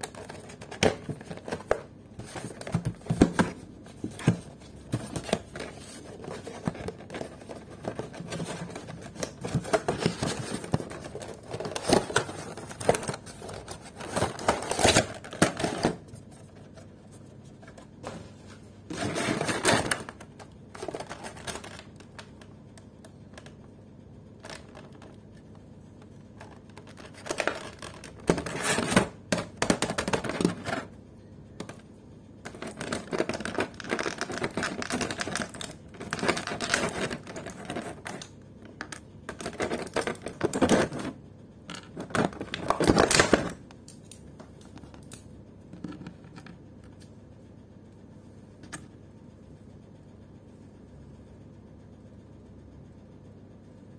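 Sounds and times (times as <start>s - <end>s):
cardboard packaging scraping: 0.0s - 16.1s, 17.6s - 21.9s, 26.4s - 29.1s
plastic tray crinkling and clicking: 0.0s - 16.5s, 18.9s - 23.6s, 24.4s - 25.2s, 26.4s - 30.9s, 32.5s - 43.6s.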